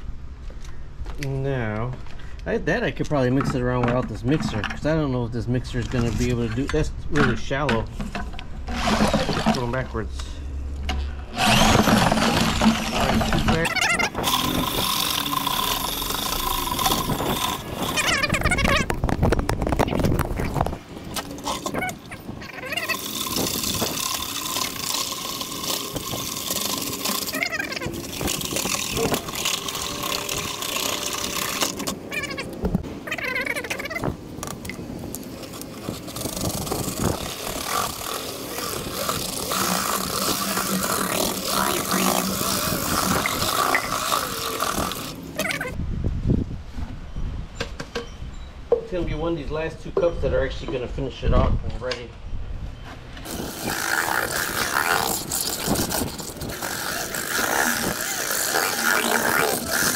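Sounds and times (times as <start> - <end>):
electric drill mixing mortar: 8.1 - 10.0, 11.1 - 32.5, 35.4 - 45.8, 53.2 - 59.9
motor whine: 10.6 - 22.2
electric drill motor whine: 11.3 - 13.3.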